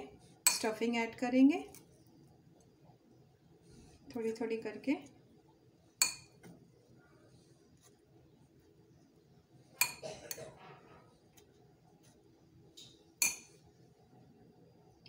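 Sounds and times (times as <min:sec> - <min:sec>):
metal spoon clinking on glass bowl: 0:06.0 - 0:06.4, 0:09.8 - 0:10.0, 0:13.2 - 0:13.6.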